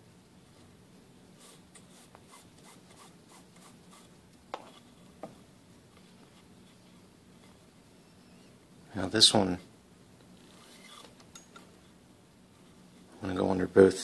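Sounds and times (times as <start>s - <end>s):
cord rubbing on cord: 1.4s - 4.9s, 10.4s - 11.2s.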